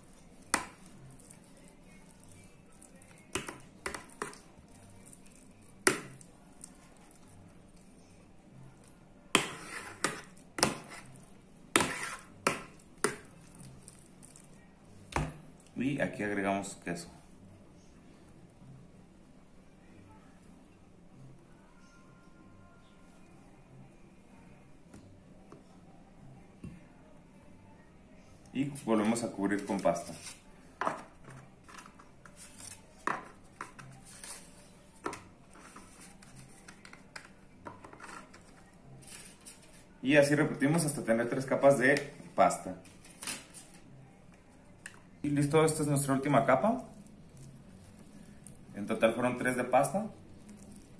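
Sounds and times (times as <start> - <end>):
soft handling sounds: 28.8 - 40.0.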